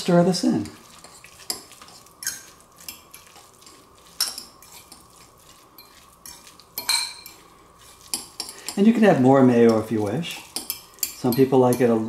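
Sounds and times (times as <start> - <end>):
fork clinking in ceramic bowl: 5.8 - 7.4, 9.6 - 12.0.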